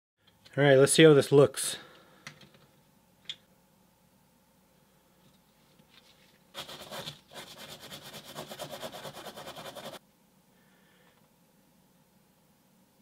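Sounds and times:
wire brush scrubbing metal: 0:06.6 - 0:10.0.

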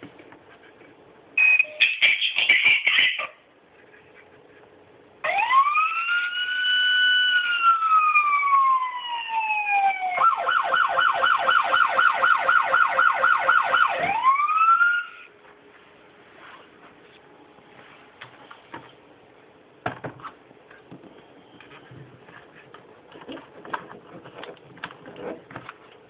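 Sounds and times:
toy police siren: 0:05.2 - 0:15.3.

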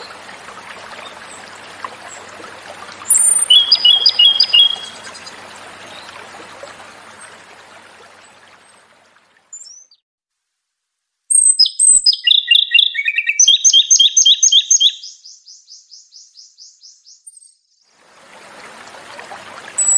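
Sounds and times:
bird singing with rapid trill: 0:03.1 - 0:05.3, 0:11.3 - 0:17.7.

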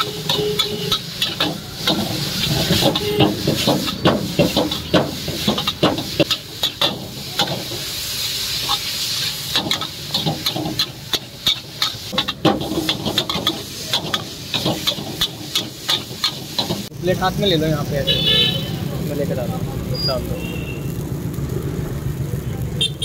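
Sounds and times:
metal spatula scraping wok: 0:00.0 - 0:16.9
sizzling hiss: 0:00.0 - 0:23.0.

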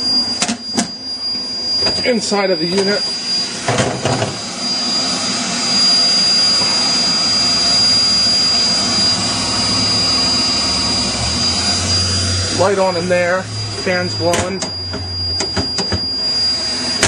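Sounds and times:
continuous high-pitched beep: 0:00.0 - 0:17.0
fans blowing air: 0:00.0 - 0:17.0.

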